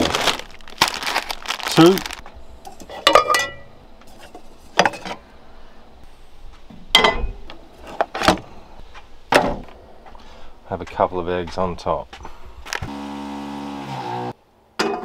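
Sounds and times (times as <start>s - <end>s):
cookware clinking and knocking: 2.7s - 3.7s, 7.0s - 7.4s.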